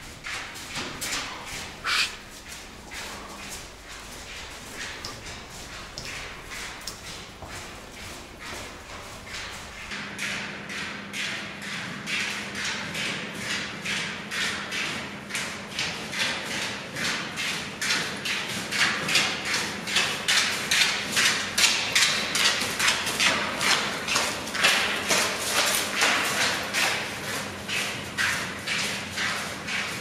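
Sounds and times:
footsteps walking: 0.0 - 10.0.

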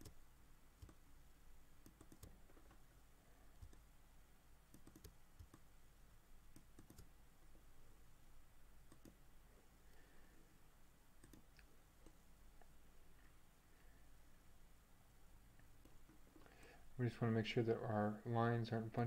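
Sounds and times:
low steady hum: 0.0 - 19.0
computer mouse clicks: 0.8 - 1.0, 1.8 - 2.8, 3.6 - 3.9, 4.7 - 5.7, 6.5 - 7.1, 8.9 - 9.2, 11.2 - 12.2.

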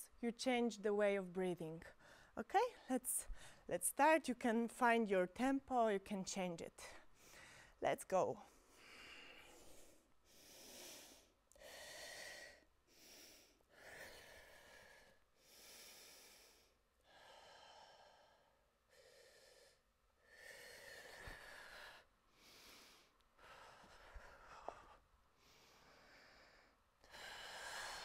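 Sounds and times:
woman breathing: 1.9 - 3.7, 6.8 - 7.8, 8.5 - 28.0.

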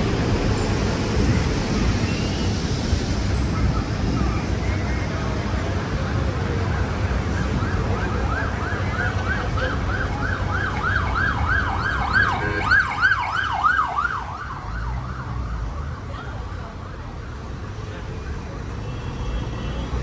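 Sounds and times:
low rumble of road traffic: 0.0 - 20.0
ambulance siren yelping: 7.2 - 17.6.

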